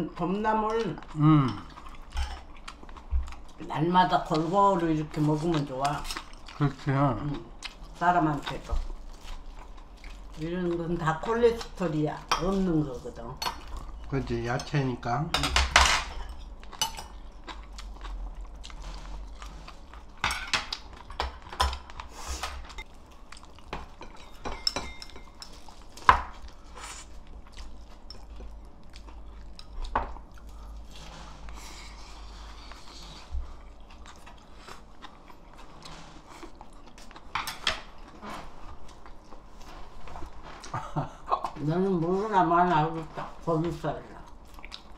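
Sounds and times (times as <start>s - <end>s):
utensils clinking against dishes: 14.5s - 17.2s, 23.8s - 25.7s
crunchy chewing: 16.3s - 24.4s, 25.0s - 40.8s, 43.3s - 44.9s.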